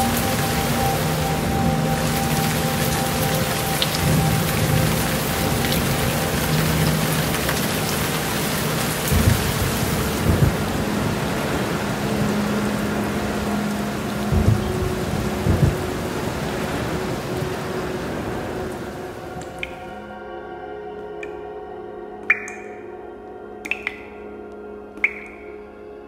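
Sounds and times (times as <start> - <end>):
rain hissing: 0.0 - 19.8
low droning ambient music: 0.0 - 26.0.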